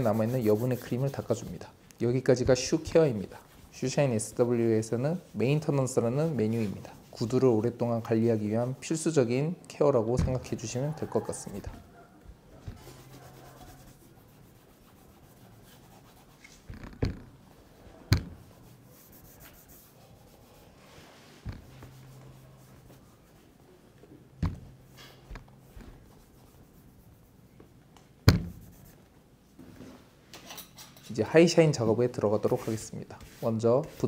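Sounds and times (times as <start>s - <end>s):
cloth rubbing on leather boot: 0.0s - 1.6s, 2.5s - 9.0s, 12.7s - 16.7s, 18.4s - 23.6s, 24.6s - 27.4s, 28.4s - 29.0s
sharp taps and knocks: 18.1s - 18.4s, 24.4s - 25.5s.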